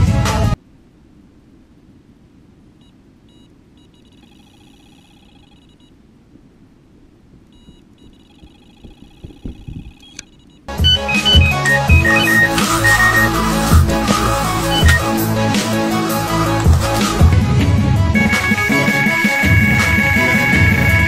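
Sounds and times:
electronic bite alarm beeping: 7.6 - 15.2.

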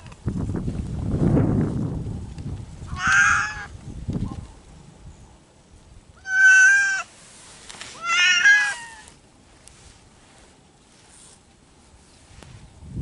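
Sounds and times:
cat meowing: 2.9 - 3.7, 6.2 - 7.1, 8.0 - 9.2.

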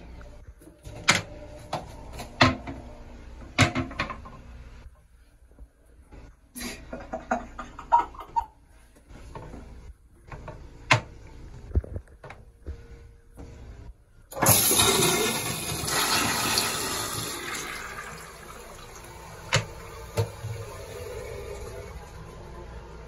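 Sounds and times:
toilet flushing water rush: 14.3 - 23.0.

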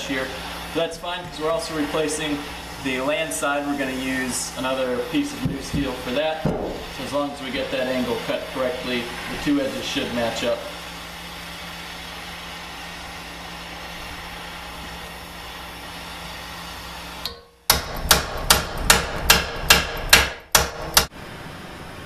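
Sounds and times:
propane torch hissing: 0.0 - 17.3
hammer striking hot steel: 17.2 - 21.1.

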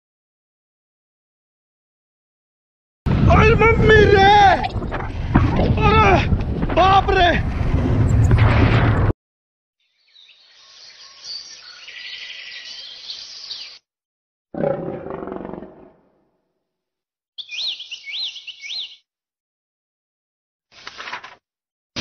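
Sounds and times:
birds chirping: 9.8 - 13.8, 17.4 - 19.0
roar-like growl: 14.6 - 16.1.

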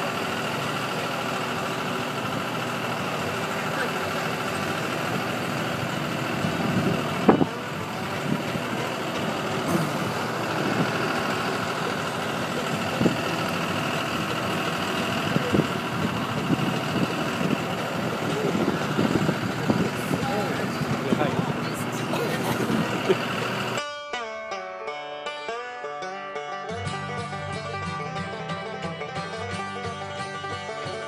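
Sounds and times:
tractor engine running: 0.0 - 23.8, 26.7 - 31.0.

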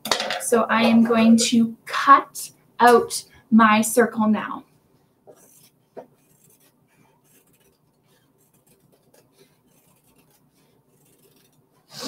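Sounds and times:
scissors cutting fabric: 5.3 - 11.6.

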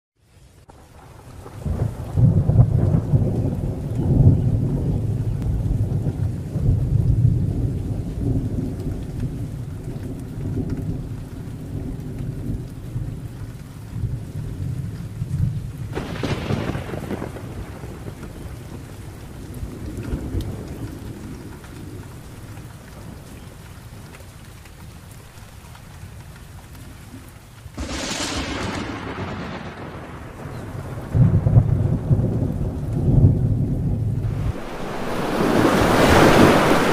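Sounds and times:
steady rain: 0.2 - 36.9
thunder rumbling: 0.8 - 13.3, 13.9 - 22.4, 27.8 - 36.9
sharp thunderclap: 15.9 - 18.4, 27.8 - 36.9.

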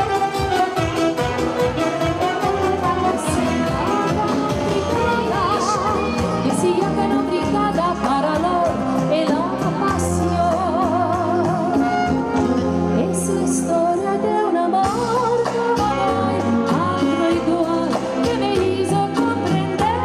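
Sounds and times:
steady bass line: 0.0 - 14.0
keyboard accompaniment: 0.0 - 20.0
woman singing with vibrato: 0.0 - 20.0.

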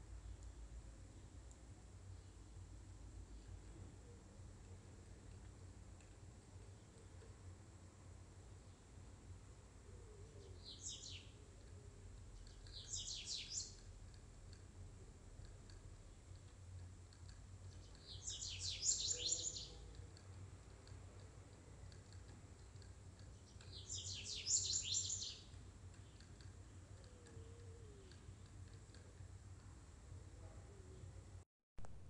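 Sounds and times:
faint steady hum: 0.0 - 32.0
small bird twittering: 10.4 - 11.4, 12.4 - 13.8, 17.8 - 20.1, 23.3 - 26.3.

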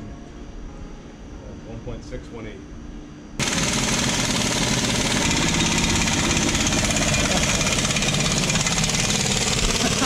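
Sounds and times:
air compressor running: 3.4 - 10.0.

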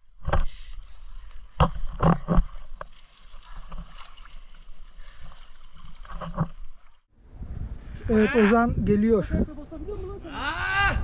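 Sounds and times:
water splashing and sloshing: 0.0 - 7.2.

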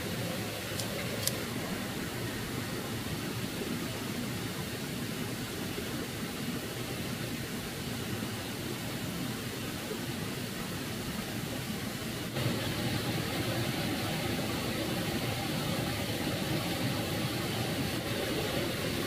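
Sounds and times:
stream water running over pebbles: 0.0 - 19.0.

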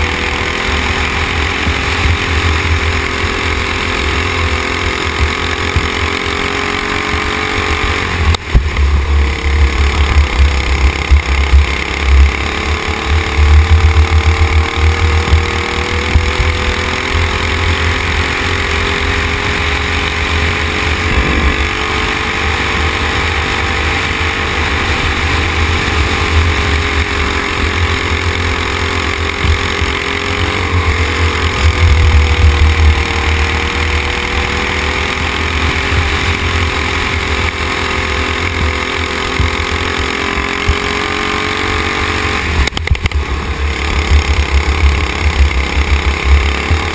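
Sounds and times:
racing kart engine running hard: 0.0 - 46.9
wind rumble on microphone: 20.6 - 26.8.

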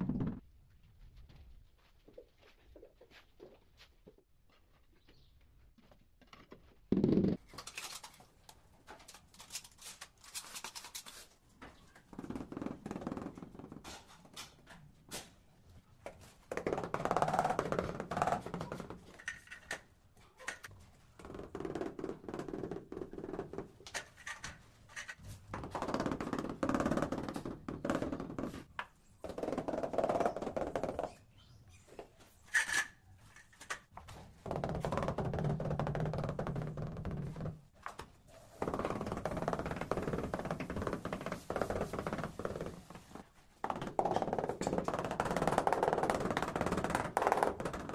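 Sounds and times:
tiles scraping: 23.8 - 26.3, 31.9 - 33.9.

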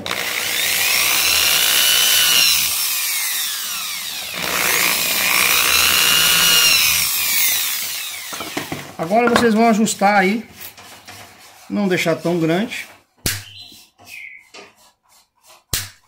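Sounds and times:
small electric drill whining: 0.0 - 8.8.

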